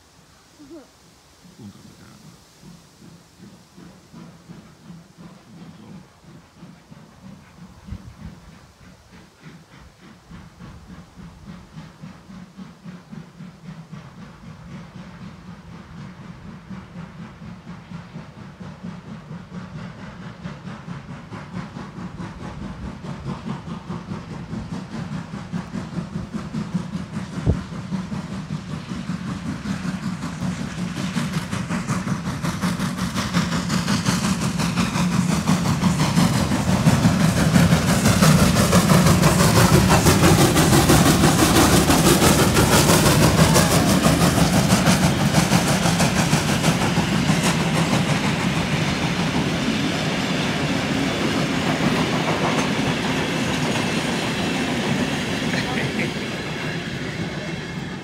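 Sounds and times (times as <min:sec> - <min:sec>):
steam locomotive passing: 0:00.0 - 0:58.0
train wheels rolling on rails: 0:00.0 - 0:58.0.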